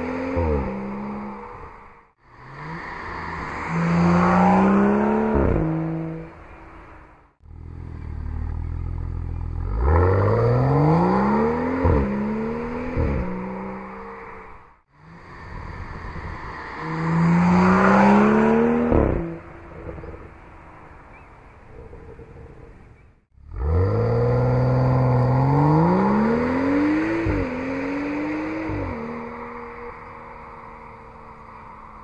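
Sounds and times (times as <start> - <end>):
car engine accelerating hard: 2.3 - 6.3, 7.4 - 14.1, 23.4 - 30.0.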